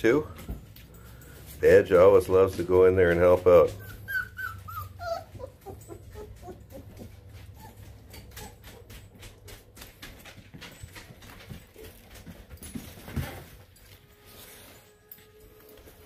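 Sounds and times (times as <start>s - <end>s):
dogs scuffling and sniffing: 0.0s - 16.0s
puppy whimpers: 3.7s - 9.0s.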